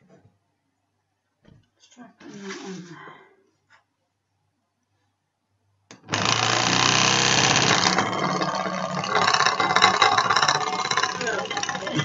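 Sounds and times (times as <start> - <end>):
pottery wheel motor rattling buzz: 6.0 - 12.0.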